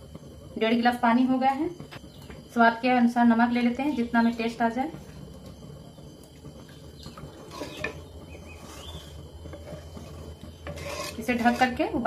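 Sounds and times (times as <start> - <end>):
low steady hum: 0.0 - 12.0
spatula stirring gravy in pan: 4.9 - 12.0.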